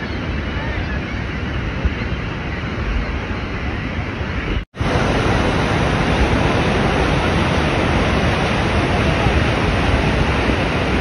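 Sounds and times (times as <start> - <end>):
waterfall rushing: 4.8 - 11.0.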